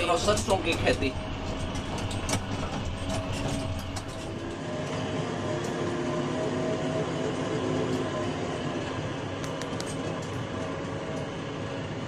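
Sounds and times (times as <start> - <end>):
light rattles in cab: 0.0 - 4.5
diesel engine running: 0.0 - 11.1.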